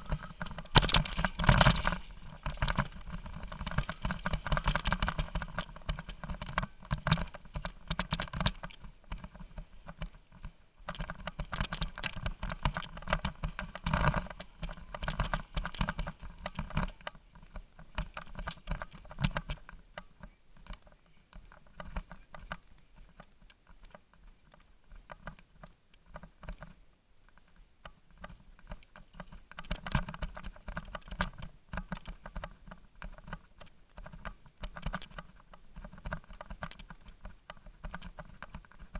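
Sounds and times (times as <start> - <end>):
bicycle clicking and rattling: 0.0 - 27.5, 28.2 - 38.9.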